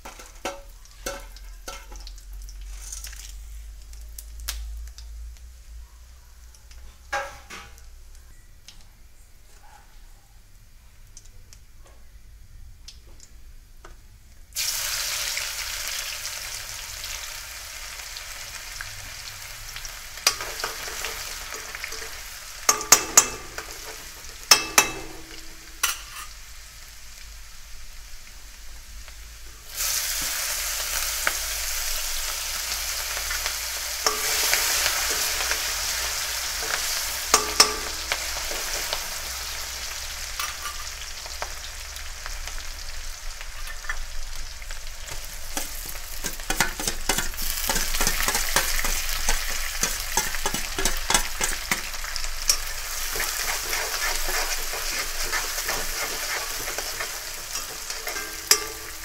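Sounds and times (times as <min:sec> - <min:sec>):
hot oil sizzling in a pan: 0:00.0 - 0:05.8, 0:12.9 - 0:59.0
spoon clinking against metal pan: 0:20.3 - 0:26.3, 0:34.0 - 0:38.7, 0:45.6 - 0:53.3, 0:56.2 - 0:59.0.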